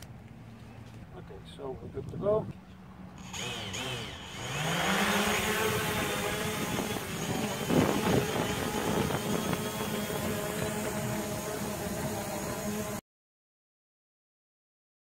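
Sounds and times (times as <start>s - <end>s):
drone propellers buzzing: 3.0s - 13.0s.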